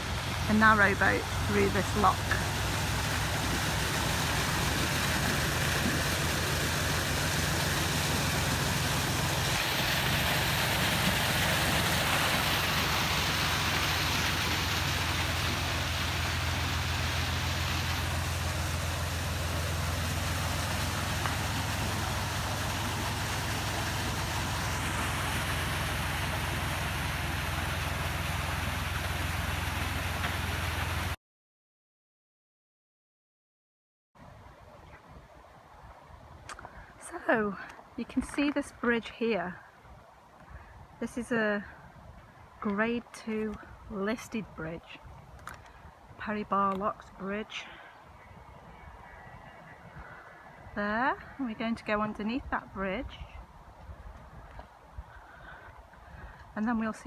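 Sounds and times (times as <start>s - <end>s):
diesel engine idling: 0.0s - 31.2s
steady hiss: 0.0s - 31.2s.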